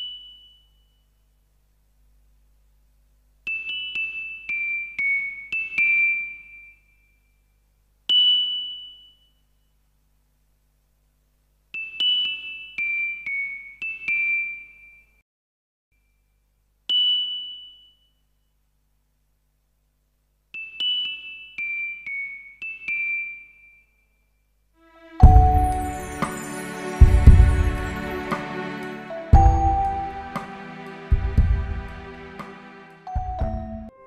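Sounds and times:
chiming glockenspiel-like melody: 0:03.5 - 0:06.8, 0:25.0 - 0:31.1, 0:33.0 - 0:34.0.

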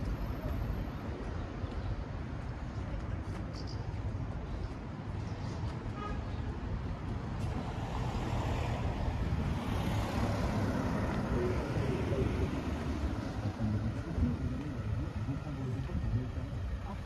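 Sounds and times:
cars driving past: 0:05.4 - 0:17.0.

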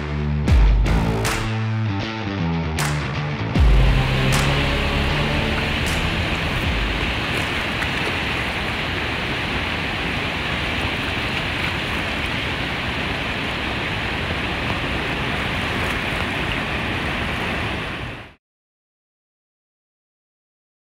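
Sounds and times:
river rapids and waterfall rushing: 0:03.8 - 0:18.4.

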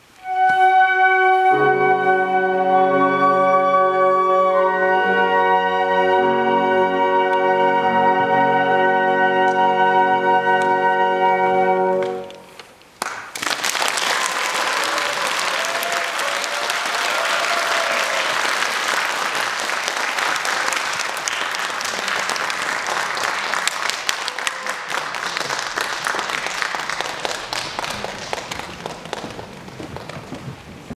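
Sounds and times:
audience applauding: 0:13.0 - 0:31.0.

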